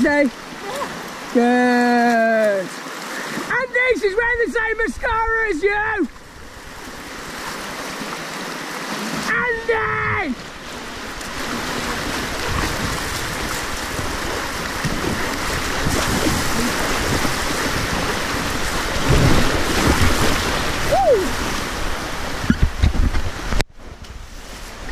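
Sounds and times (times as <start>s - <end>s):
whitewater rapids rushing: 0.0s - 22.6s
wind buffeting microphone: 9.6s - 24.0s.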